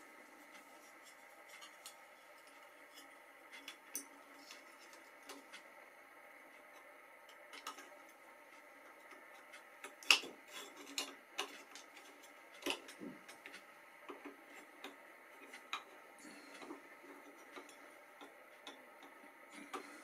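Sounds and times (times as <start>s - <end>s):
small metal clicks and taps: 6.7s - 7.9s.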